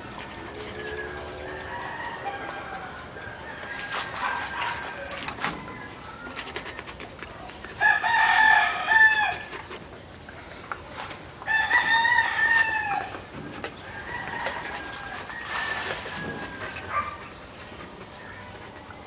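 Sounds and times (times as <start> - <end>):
rooster crowing: 0.9 - 5.2, 7.8 - 9.5, 11.5 - 13.2, 13.8 - 17.2.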